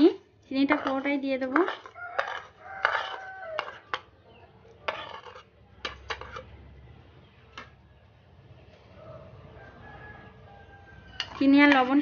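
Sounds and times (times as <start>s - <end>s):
metal spoon clinking and scraping: 0.6s - 6.6s, 11.0s - 12.0s.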